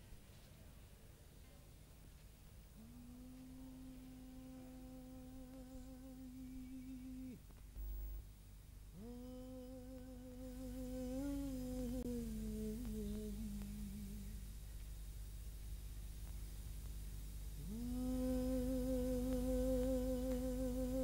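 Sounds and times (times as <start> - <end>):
person humming held note: 2.8 - 7.4, 8.9 - 14.5, 17.6 - 21.0.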